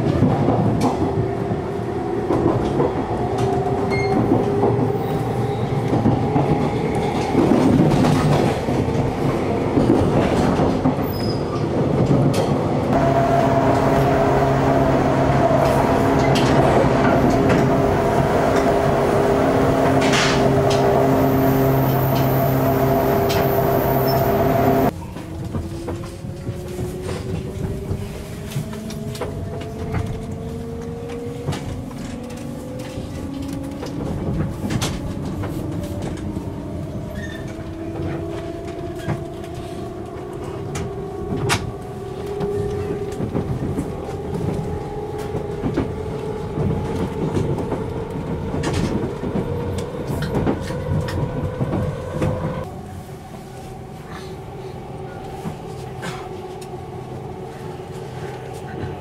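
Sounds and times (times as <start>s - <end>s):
wheels clicking over rail joints: 2.3s - 52.7s
loud steady drone: 12.9s - 24.9s
electric train motor whine: 13.0s - 24.9s.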